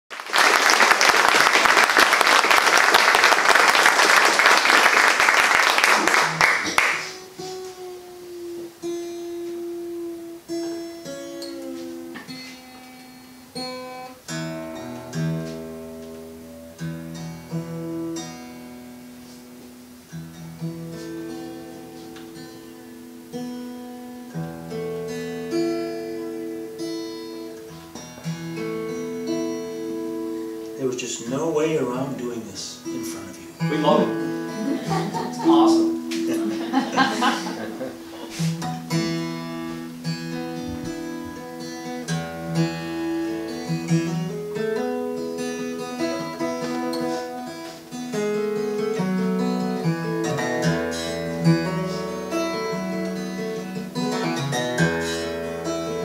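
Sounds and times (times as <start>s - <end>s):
applause: 0.1s - 7.3s
acoustic guitar picking: 4.7s - 56.0s.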